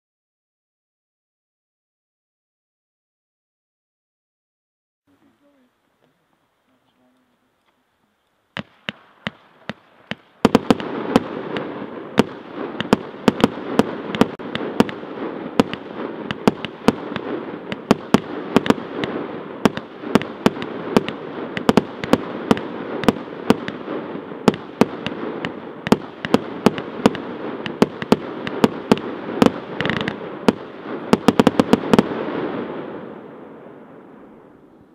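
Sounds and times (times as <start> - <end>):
fireworks hiss: 5.2 - 33.2
fireworks cracks and bursts: 8.5 - 34.6.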